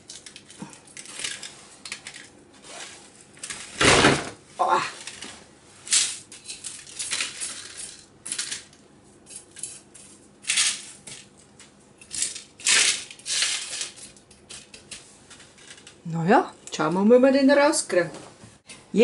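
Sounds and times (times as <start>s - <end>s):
salt crumbs rattling on baking paper: 12.2s - 14.7s.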